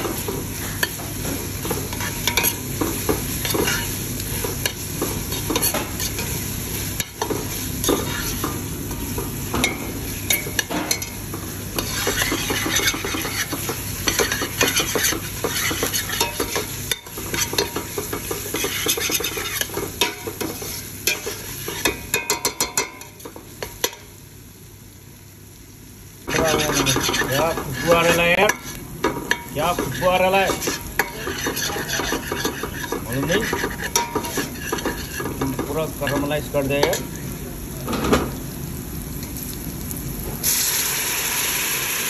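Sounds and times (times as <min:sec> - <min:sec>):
masala sizzling: 0:00.0 - 0:42.0
spoon scraping metal pot: 0:11.8 - 0:16.6, 0:26.3 - 0:28.8, 0:29.6 - 0:37.0.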